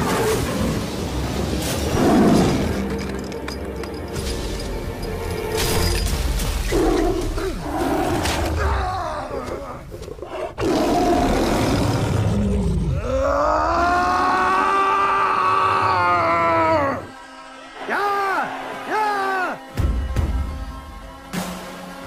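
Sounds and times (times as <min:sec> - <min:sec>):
tiger snarling and roaring: 0:00.0 - 0:03.0, 0:06.6 - 0:14.6
dramatic orchestral music: 0:00.0 - 0:09.9, 0:15.8 - 0:22.0
man yelling: 0:17.8 - 0:19.6.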